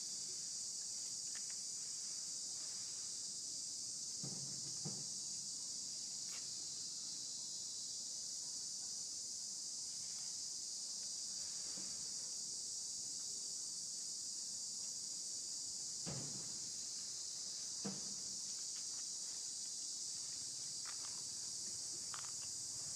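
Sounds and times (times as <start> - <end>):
insect chorus buzzing: 0.0 - 22.9.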